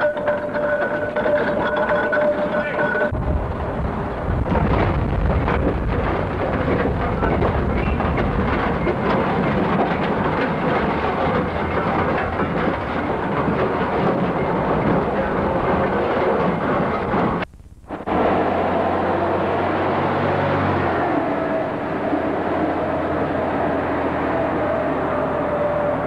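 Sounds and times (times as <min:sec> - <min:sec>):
heavy machine running with clatter: 0:00.0 - 0:26.0.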